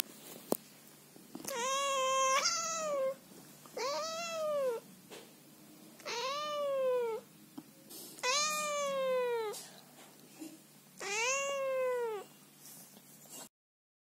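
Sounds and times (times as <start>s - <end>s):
cat meowing: 1.4s - 3.2s, 3.8s - 4.8s, 6.0s - 7.3s, 8.2s - 9.6s, 11.0s - 12.3s.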